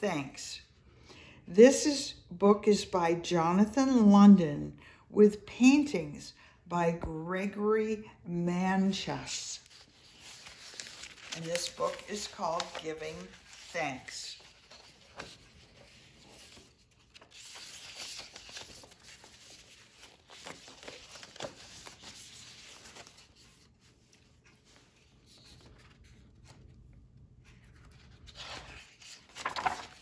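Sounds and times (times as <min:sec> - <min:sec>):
book pages turning: 0:09.6 - 0:30.0.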